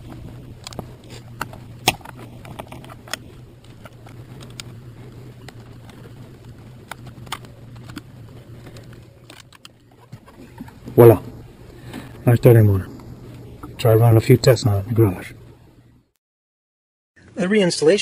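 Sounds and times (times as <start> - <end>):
wiring connectors clicking: 0.0 - 10.8
steady low hum: 0.0 - 16.1.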